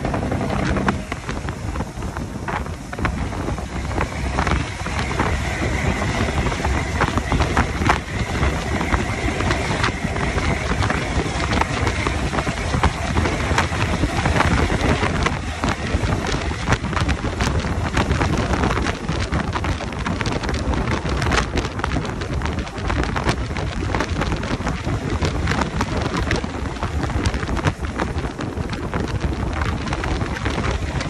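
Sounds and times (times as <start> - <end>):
trucks driving on wet highway: 0.0 - 31.0
wind buffeting microphone: 0.0 - 31.0.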